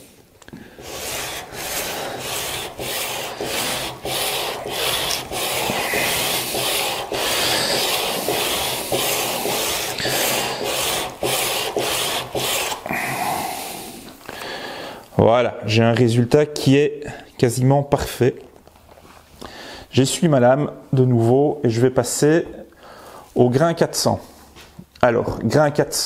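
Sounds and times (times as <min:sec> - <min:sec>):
chisel rasping on sandpaper: 0:00.7 - 0:12.9.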